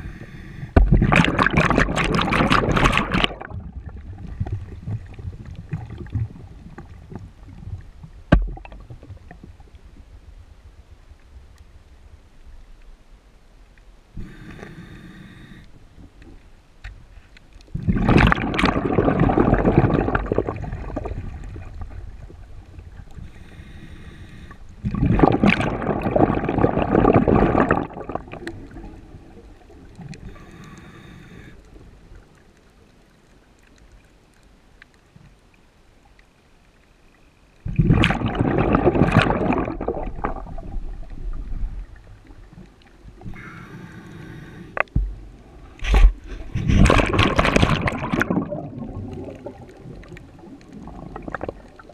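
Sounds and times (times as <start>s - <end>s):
bubbling exhaled air underwater: 0.0s - 9.7s, 17.7s - 31.5s, 37.6s - 51.9s
regulator inhalation hiss: 14.2s - 15.6s, 23.3s - 24.6s, 43.3s - 44.8s.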